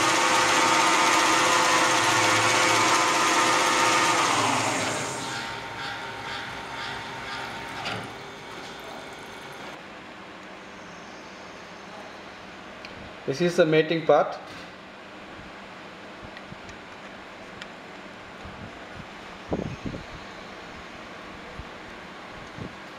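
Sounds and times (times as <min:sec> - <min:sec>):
lathe spindle whining: 0:00.0 - 0:09.8.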